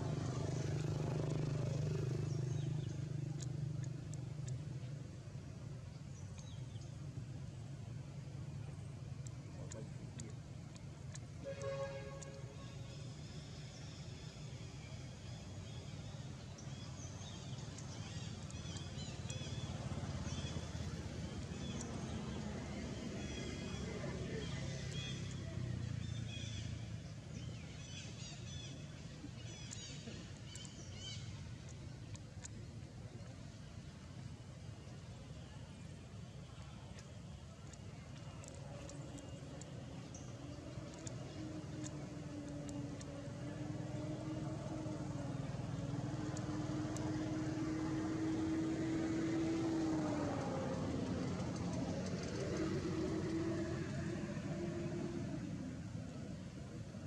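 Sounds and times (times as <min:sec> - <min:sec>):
motor engine running: 0:00.0 - 0:05.4, 0:15.4 - 0:26.9, 0:35.8 - 0:57.0.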